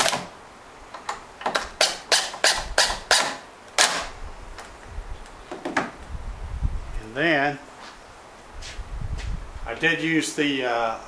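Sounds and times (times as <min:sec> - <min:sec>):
impact driver driving screw: 0:01.4 - 0:04.1.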